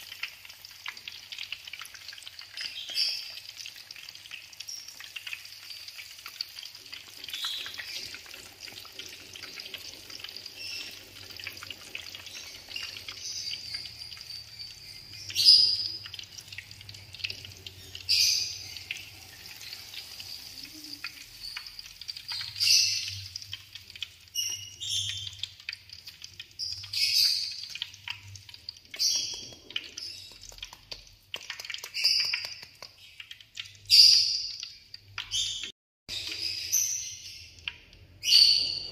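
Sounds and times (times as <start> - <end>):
oil sizzling and crackling: 0.0 - 38.9.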